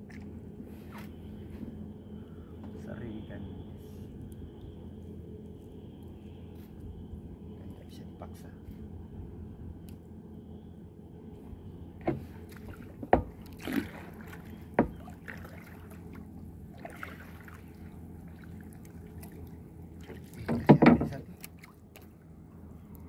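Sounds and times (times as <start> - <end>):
fishing line scuffing and rubbing: 0.7 - 1.8
knocks on wooden canoe hull: 14.7 - 15.1, 20.4 - 21.2.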